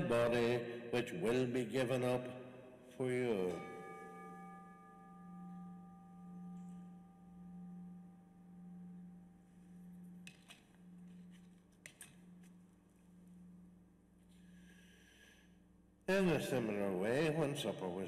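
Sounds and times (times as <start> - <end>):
bell ringing: 3.1 - 9.2.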